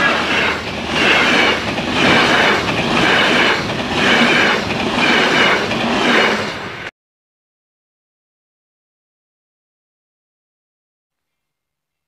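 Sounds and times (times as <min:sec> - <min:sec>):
train wheels clattering on track: 0:00.0 - 0:06.9.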